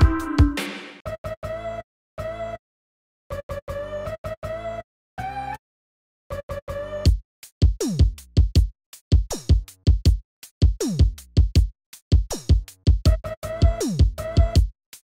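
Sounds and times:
deep kick drum: 0:00.0 - 0:00.9, 0:07.1 - 0:11.7
electronic music drum-machine beat: 0:00.0 - 0:01.0.

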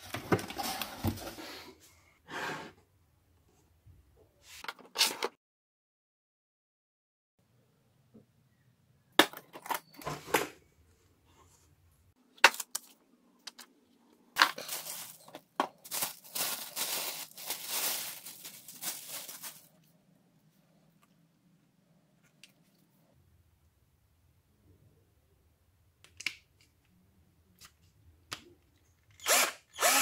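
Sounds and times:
plastic bag crinkling: 0:14.3 - 0:19.9.

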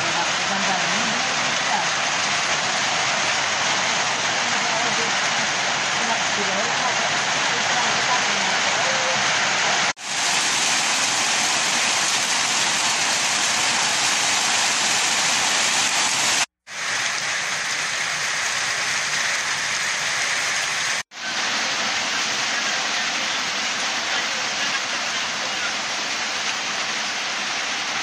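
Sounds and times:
rain hissing on leaves: 0:00.0 - 0:28.0.

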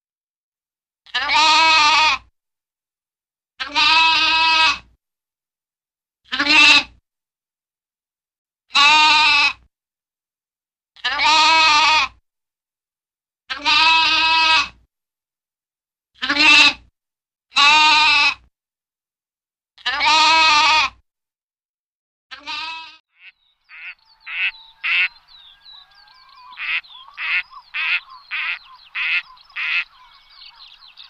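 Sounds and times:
lambs bleating: 0:01.1 - 0:02.2, 0:03.6 - 0:04.8, 0:06.3 - 0:07.0, 0:08.7 - 0:09.6, 0:11.0 - 0:12.2, 0:13.5 - 0:14.8, 0:16.2 - 0:16.8, 0:17.6 - 0:18.4, 0:19.8 - 0:21.0, 0:22.3 - 0:31.0
duck quacks: 0:22.4 - 0:31.0.

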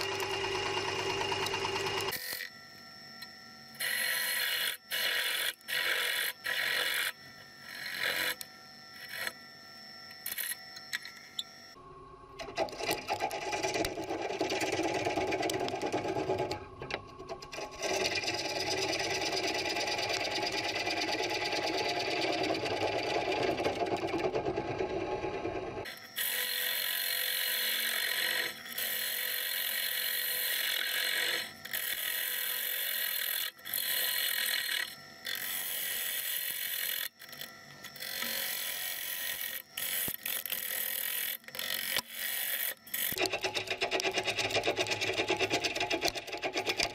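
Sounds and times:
lathe gouge scraping wooden bowl: 0:12.5 - 0:16.6, 0:17.5 - 0:33.1.

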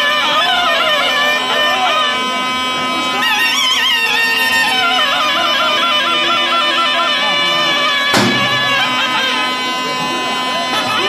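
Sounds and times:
zurna folk melody: 0:00.0 - 0:11.0
steady held drone tone: 0:00.8 - 0:11.0
sharp knock: 0:08.1 - 0:09.1.

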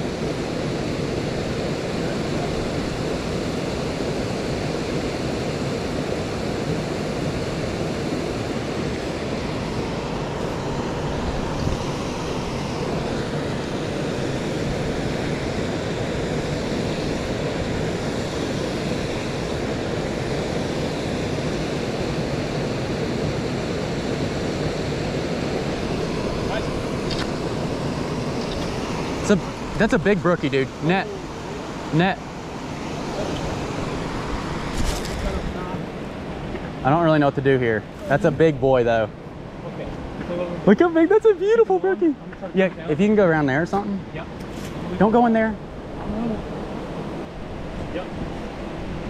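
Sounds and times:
small waterfall rushing: 0:00.0 - 0:37.5.

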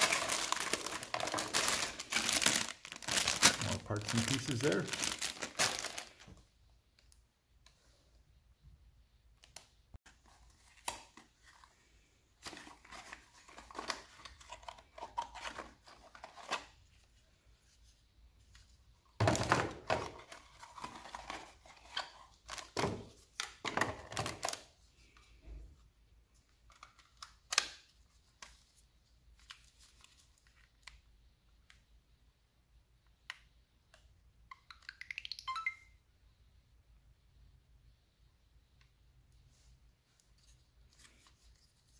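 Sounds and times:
cardboard and plastic bags rustling: 0:00.0 - 0:06.4.

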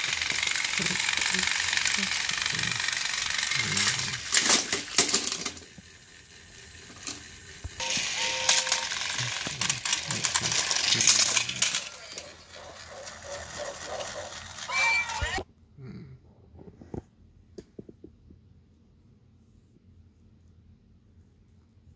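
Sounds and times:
toy train motors whirring: 0:00.0 - 0:15.4
short electronic tone: 0:07.8 - 0:08.9.

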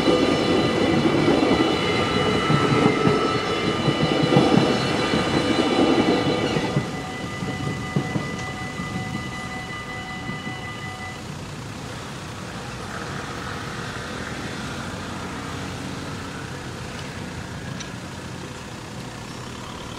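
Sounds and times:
level crossing bells ringing: 0:00.0 - 0:11.7
road traffic rumble: 0:00.0 - 0:19.9.

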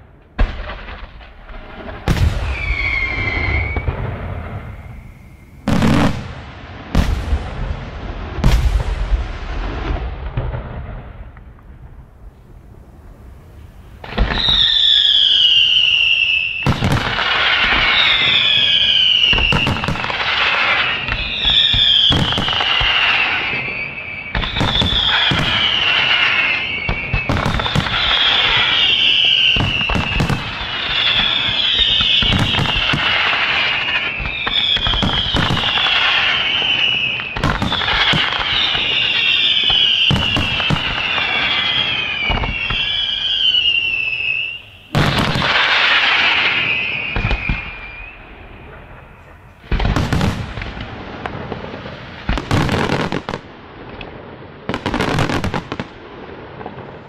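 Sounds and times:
fireworks bangs and crackles: 0:00.0 - 0:57.0
fireworks whistles falling in pitch: 0:00.4 - 0:07.1, 0:14.0 - 0:50.8, 0:54.7 - 0:55.8.

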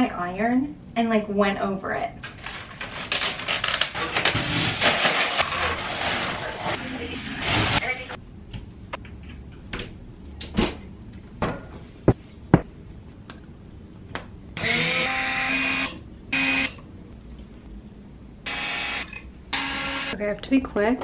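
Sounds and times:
cordless drill whining: 0:14.6 - 0:16.7.

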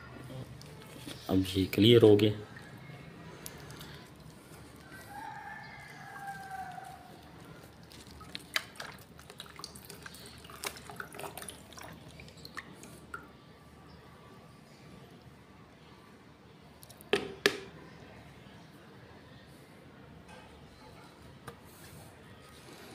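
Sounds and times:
rooster crowing: 0:04.8 - 0:07.2
liquid dripping into bucket: 0:06.2 - 0:13.3.

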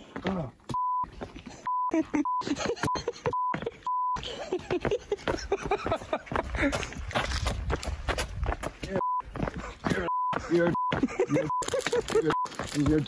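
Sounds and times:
censor bleep tone: 0:00.7 - 0:01.1, 0:09.0 - 0:09.2.

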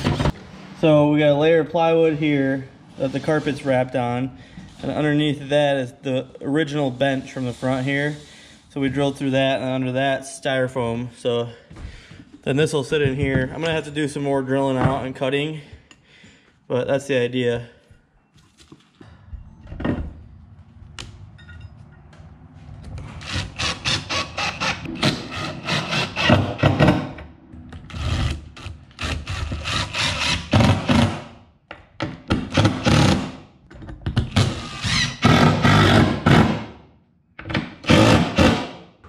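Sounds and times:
cordless drill driving screws: 0:34.4 - 0:35.9.

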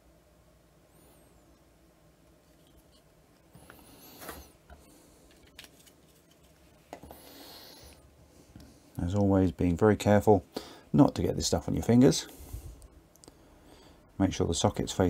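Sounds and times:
plastic parts rubbing: 0:02.3 - 0:07.1.

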